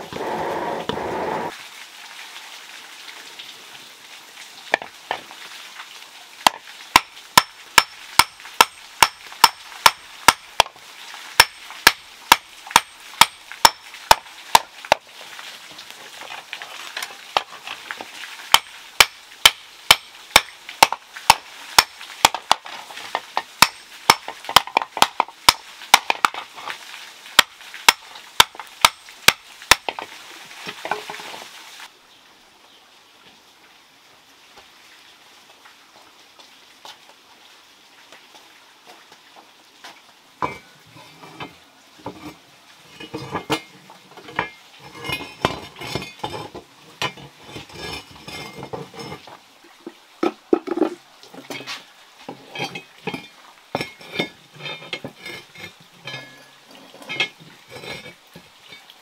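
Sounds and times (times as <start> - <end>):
hammer striking hot iron: 6.4 - 10.7, 11.4 - 14.6, 18.5 - 22.6, 23.6 - 26.4.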